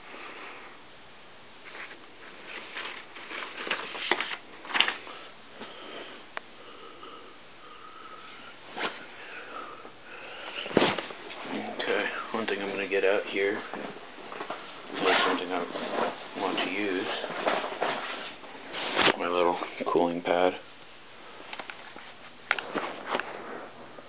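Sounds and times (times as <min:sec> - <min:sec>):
paper rustling and handling: 0:01.6 - 0:05.3.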